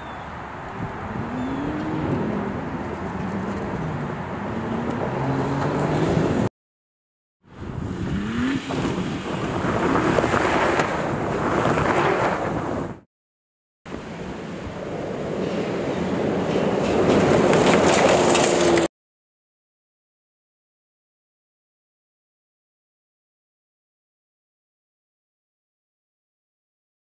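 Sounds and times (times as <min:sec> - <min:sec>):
trucks driving by: 0:00.0 - 0:06.5, 0:07.5 - 0:12.8, 0:13.9 - 0:18.9
truck engine accelerating: 0:01.0 - 0:06.5, 0:07.5 - 0:10.8
tyres on gravel: 0:08.3 - 0:12.8, 0:15.2 - 0:18.9.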